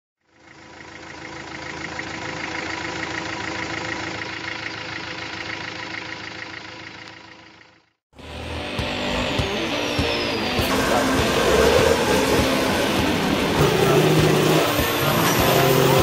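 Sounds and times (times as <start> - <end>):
engine idling: 0.2 - 8.0, 9.1 - 16.0.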